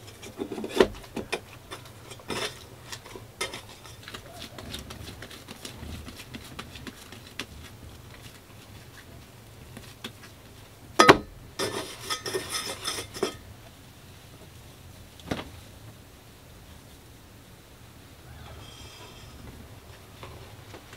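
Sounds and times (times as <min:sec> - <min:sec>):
dishes and pots clattering: 0:00.1 - 0:04.0, 0:11.0 - 0:13.4.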